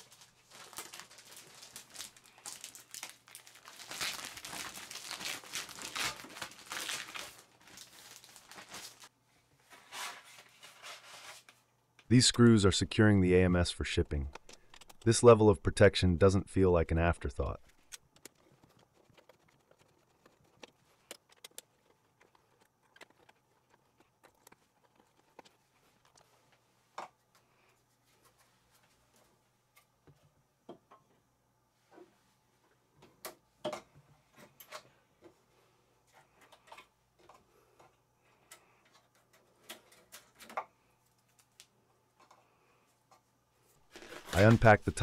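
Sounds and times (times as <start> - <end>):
faint clicks of plastic parts: 36.1 - 43.3.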